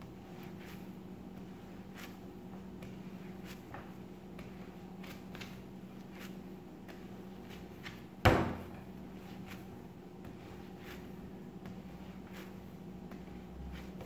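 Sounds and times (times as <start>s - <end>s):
dough pressing and slapping: 0.0s - 14.0s
loud thump on table: 8.2s - 8.8s.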